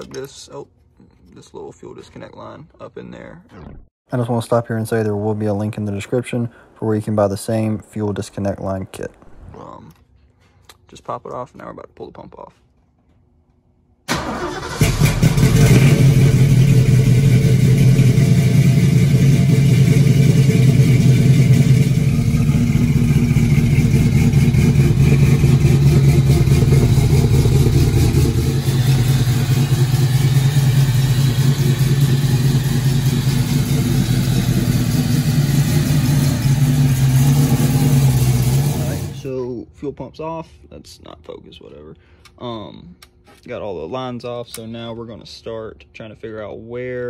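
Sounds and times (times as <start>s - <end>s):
car engine exhaust rumble: 15.2s - 39.3s.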